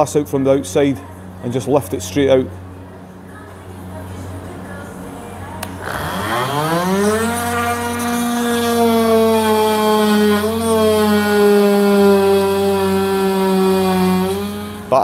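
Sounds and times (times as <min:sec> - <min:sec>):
oscillating multi-tool cutting: 0:05.6 - 0:15.0.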